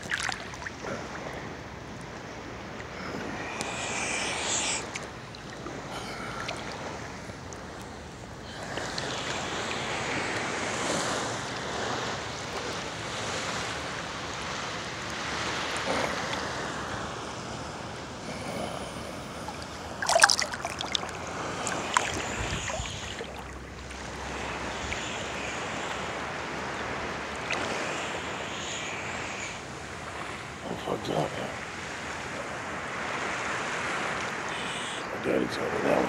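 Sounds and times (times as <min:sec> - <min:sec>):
sea water lapping: 0:00.0 - 0:36.0
sharp splashes near microphone: 0:20.0 - 0:25.3.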